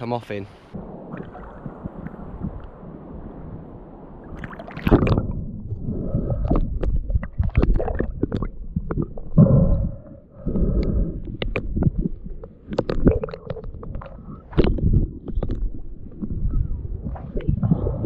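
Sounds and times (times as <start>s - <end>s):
underwater rumbling and bubbling: 0.7s - 18.0s
underwater clicks: 4.4s - 5.4s, 6.4s - 9.9s, 10.5s - 17.8s.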